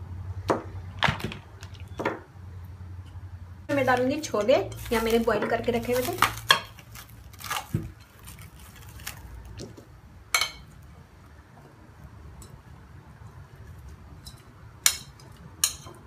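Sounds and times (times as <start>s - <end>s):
plastic cling film crinkling: 3.7s - 9.6s.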